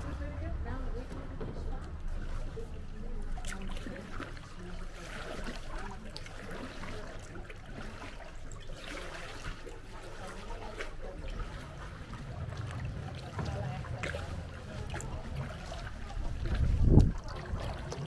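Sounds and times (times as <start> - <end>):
steady low rumble: 0.0 - 4.1, 11.2 - 17.9
paddles splashing water: 0.0 - 18.0.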